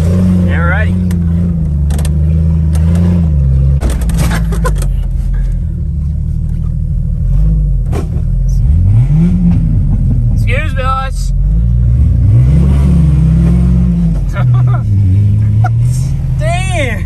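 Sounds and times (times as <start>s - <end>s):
car engine revving: 0.0s - 17.0s
body knocks and rattles: 3.8s - 5.4s.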